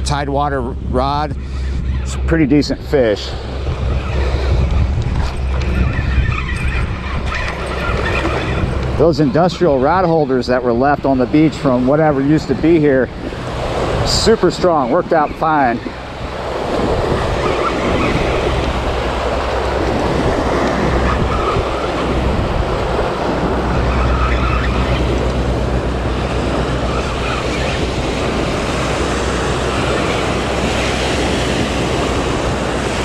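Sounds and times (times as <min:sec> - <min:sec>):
wind rumbling on microphone: 0:00.0 - 0:33.0
small waves washing onto sand: 0:07.4 - 0:33.0.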